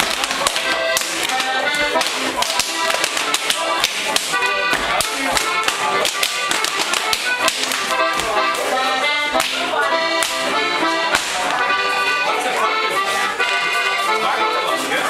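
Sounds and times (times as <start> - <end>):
dancers slapping and stamping: 0.0 - 11.8
accordion folk dance tune: 0.0 - 15.0.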